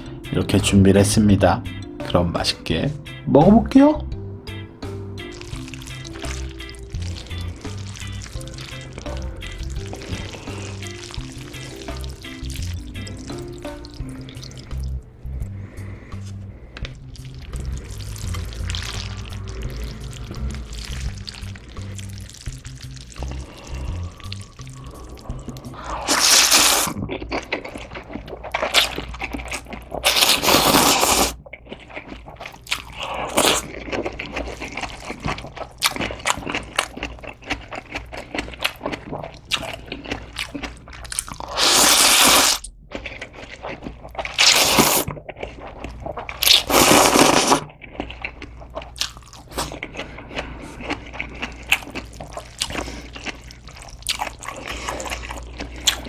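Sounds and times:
chewing and mouth clicks: 5.2s - 15.6s, 16.2s - 56.0s
wet noodle slurps: 17.2s - 31.4s, 41.3s - 42.7s, 43.3s - 48.4s.

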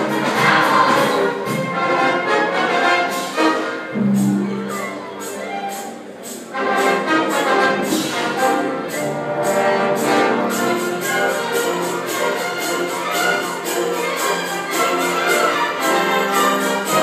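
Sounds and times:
orchestral music with brass: 0.0s - 17.0s.

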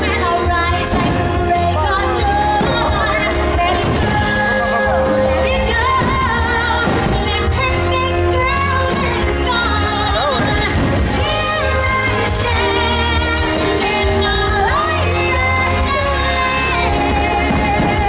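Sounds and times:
pop song with singing: 0.0s - 18.0s
firework bangs: 2.2s - 12.0s.

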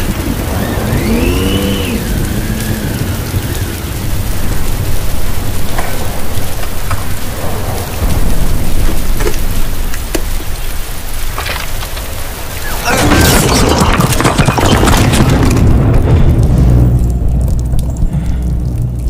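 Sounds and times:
whine rising and falling: 0.0s - 5.6s
deep steady rumble: 0.0s - 11.4s, 15.0s - 19.0s
heavy rain on wet street: 0.0s - 19.0s.

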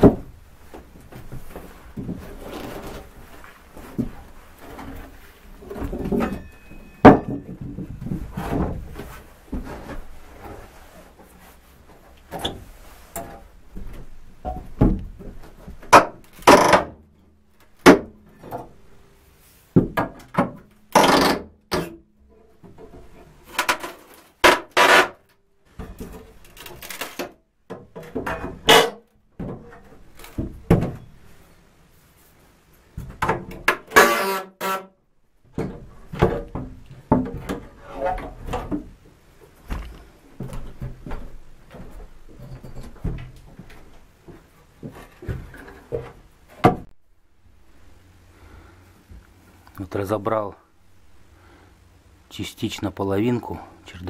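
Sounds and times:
floorboards pried with crowbar: 13.2s - 17.0s, 17.8s - 18.6s, 19.8s - 22.0s, 22.6s - 25.2s, 25.8s - 31.1s, 33.0s - 34.9s.

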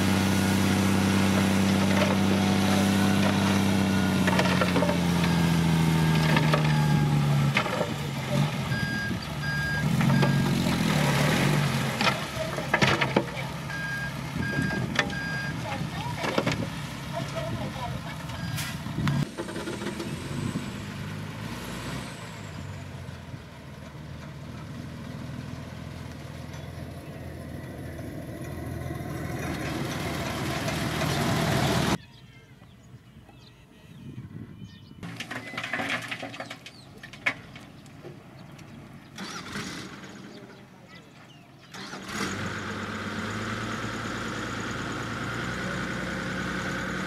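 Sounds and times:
diesel truck engine running: 0.0s - 32.0s, 38.1s - 47.0s
truck driving by: 0.0s - 32.0s, 38.0s - 40.8s, 41.6s - 47.0s
gravel unloading from truck: 35.0s - 37.8s.

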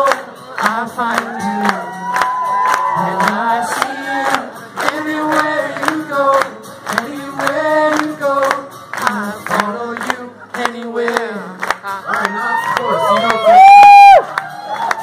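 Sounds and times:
person singing: 0.0s - 14.2s
audience singing along: 2.9s - 9.8s.

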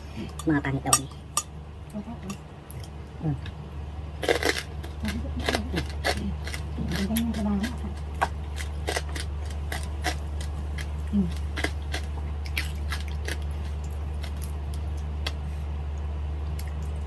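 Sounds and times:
low electrical hum: 0.0s - 17.0s
chewing and mouth clicks: 4.2s - 15.4s.

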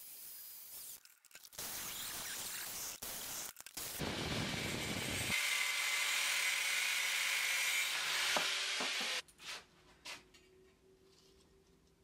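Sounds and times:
angle grinder cutting steel: 3.4s - 9.2s.

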